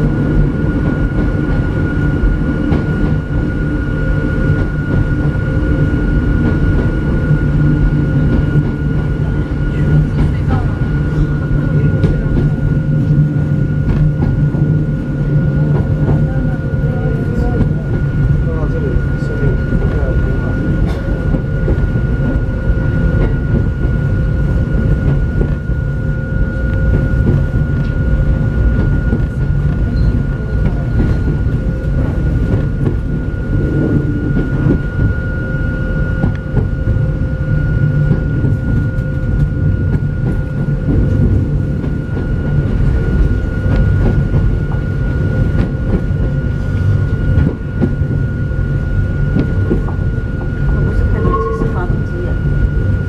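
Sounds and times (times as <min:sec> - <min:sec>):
train wheels rumbling: 0:00.0 - 0:53.0
thin high whine: 0:48.0 - 0:53.0.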